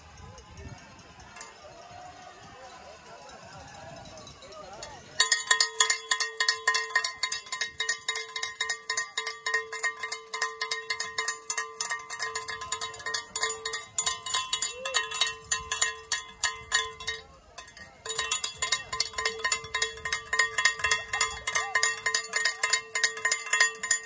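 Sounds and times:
cowbell ringing rapidly: 0.0s - 24.0s.

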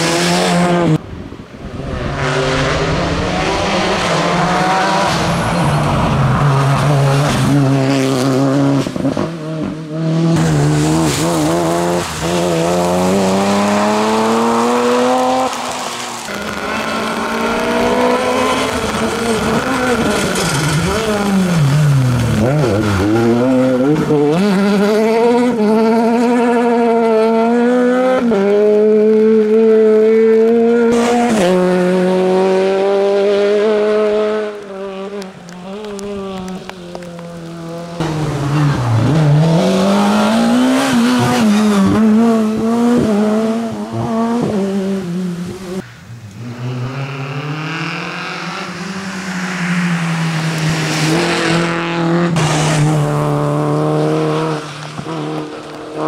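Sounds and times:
rally car engines revving: 0.0s - 56.0s
tyres hissing on wet road: 10.4s - 23.1s.

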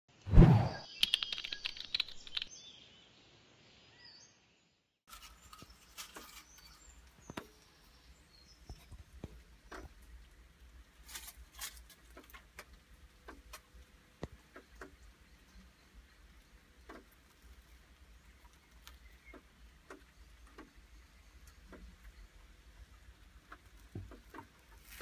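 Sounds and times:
soft clicks and ticks: 8.6s - 25.0s.

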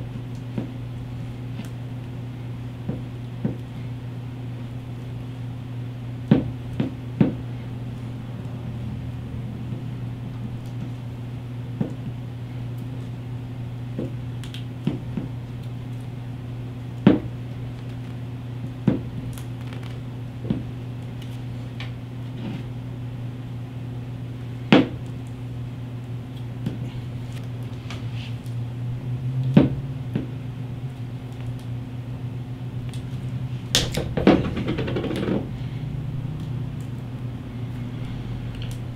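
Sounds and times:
low hum: 0.0s - 38.9s
tape crackling off a roll: 19.2s - 22.7s, 32.8s - 35.5s.

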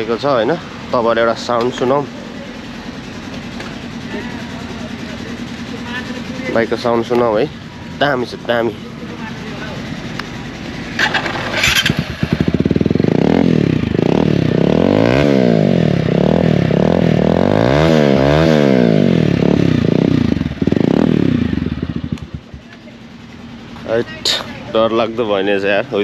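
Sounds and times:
motorcycle engine revving: 0.0s - 26.0s.

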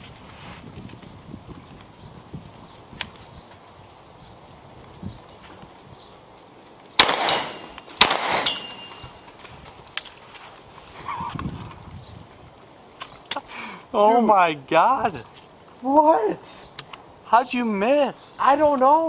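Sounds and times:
shotgun shots with echo: 7.0s - 9.0s.

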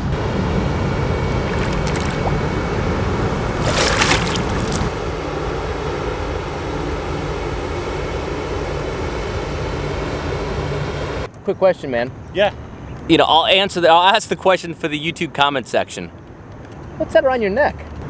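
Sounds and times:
fish splashing in water: 1.3s - 2.4s, 3.6s - 4.9s.

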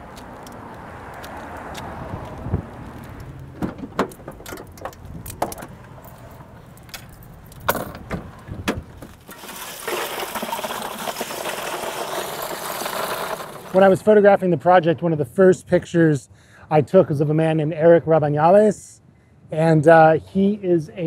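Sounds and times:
van doors knocking and clicking: 3.5s - 5.8s, 7.7s - 9.2s
loose ice rattling: 9.0s - 14.1s.

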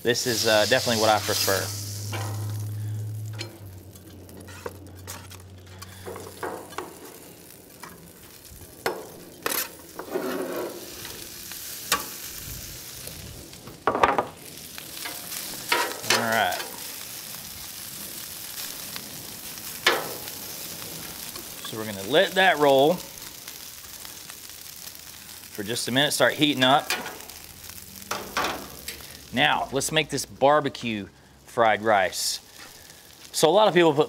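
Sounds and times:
rice sizzling on griddle: 0.0s - 30.3s, 30.9s - 34.0s
metal spatula scraping: 4.3s - 6.0s, 9.4s - 11.2s.

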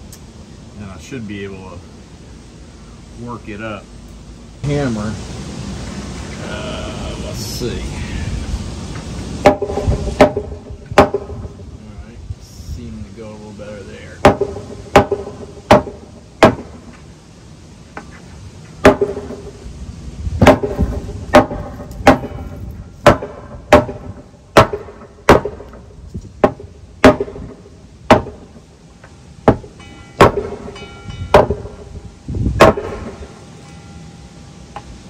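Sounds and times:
hammer striking wooden board: 9.4s - 11.3s, 14.2s - 16.8s, 18.8s - 19.5s, 20.4s - 25.8s, 26.4s - 28.4s, 29.4s - 31.8s, 32.6s - 33.2s.

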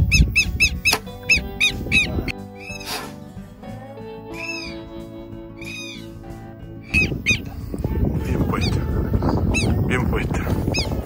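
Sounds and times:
wind noise on microphone: 0.0s - 3.0s, 5.6s - 11.0s
background music of sustained chords: 0.0s - 11.0s
drawn-out high calls: 0.0s - 11.0s.

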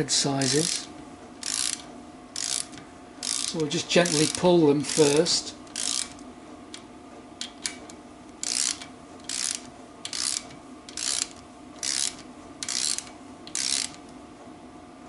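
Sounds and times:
socket ratchet clicking: 0.4s - 6.8s, 7.4s - 14.0s.

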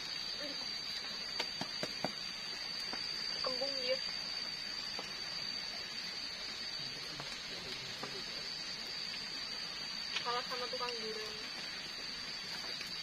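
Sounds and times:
constant high thin tone: 0.0s - 13.0s
steady rain falling: 0.0s - 13.0s.

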